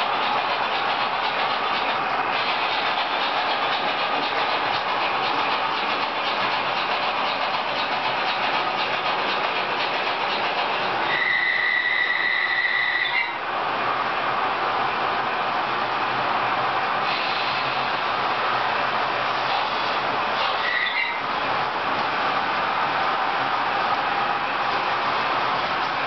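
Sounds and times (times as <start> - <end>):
model train wheels rattling: 0.0 - 11.0
high whistle-like tone: 11.1 - 13.4.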